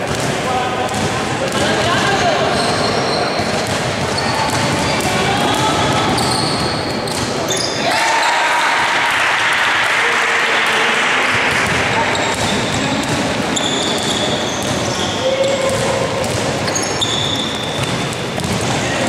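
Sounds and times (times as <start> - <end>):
voices of players and spectators: 0.0 - 19.0
sneakers squeaking on court: 0.1 - 8.3, 11.6 - 19.0
basketball dribbling: 3.4 - 7.2, 11.5 - 19.0.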